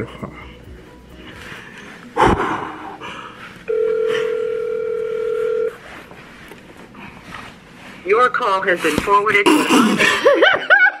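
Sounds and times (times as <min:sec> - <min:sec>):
phone ringback tone: 0:03.7 - 0:05.9.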